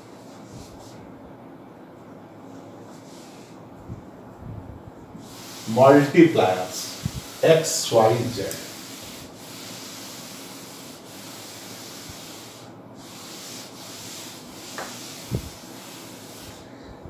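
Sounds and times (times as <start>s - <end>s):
duster scrubbing a chalkboard: 2.9s - 3.6s, 5.2s - 16.8s.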